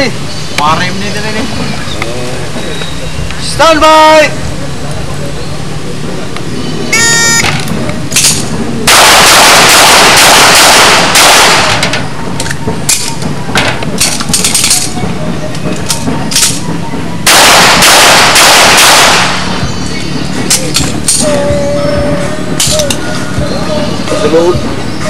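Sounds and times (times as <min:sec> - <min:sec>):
handgun shots in fast strings: 0:08.1 - 0:11.9, 0:17.3 - 0:19.5.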